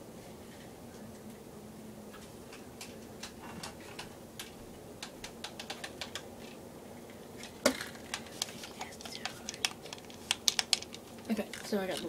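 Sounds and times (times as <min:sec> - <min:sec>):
ceiling fan humming: 0:00.0 - 0:12.0
small objects clicking and tapping: 0:02.5 - 0:06.6, 0:07.4 - 0:12.0.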